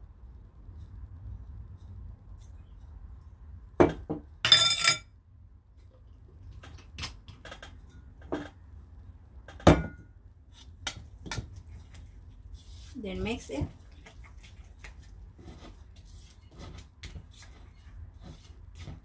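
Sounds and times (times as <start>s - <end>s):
metal utensils clinking: 4.5s - 5.0s.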